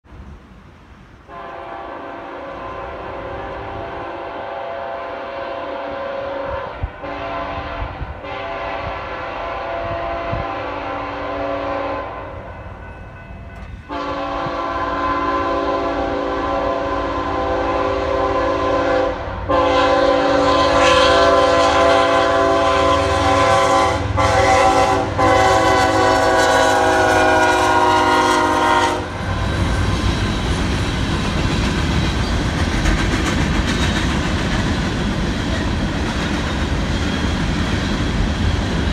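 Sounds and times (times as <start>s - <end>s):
train air horn blasts: 1.3s - 12.6s, 13.8s - 29.7s
freight cars rumbling past: 19.1s - 38.9s.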